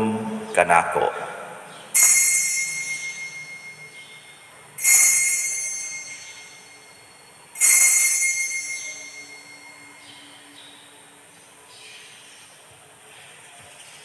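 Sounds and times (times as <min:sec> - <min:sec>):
altar bell ringing: 0:01.9 - 0:11.0.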